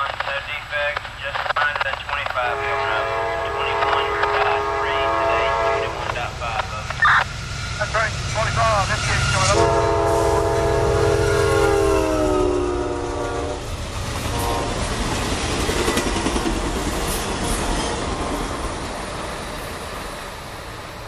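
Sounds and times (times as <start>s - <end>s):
locomotive horn: 2.4s - 6.4s, 9.1s - 13.6s, 14.3s - 14.8s
train wheels clicking over rail joints: 13.8s - 20.8s.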